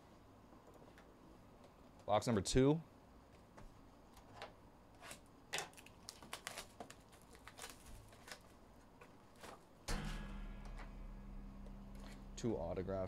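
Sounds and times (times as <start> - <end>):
shrink wrap crinkling: 5.6 - 8.6.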